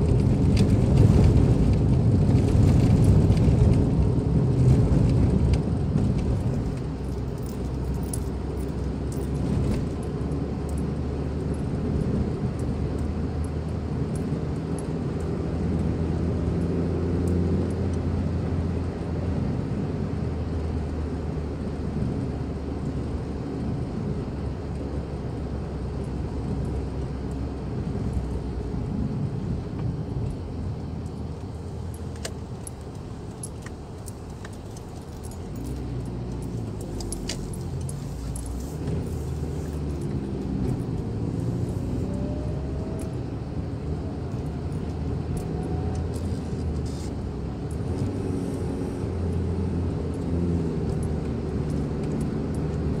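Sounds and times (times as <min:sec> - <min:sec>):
car engine and road noise: 0:00.0 - 0:53.0
light clicks and rattles: 0:29.8 - 0:43.2.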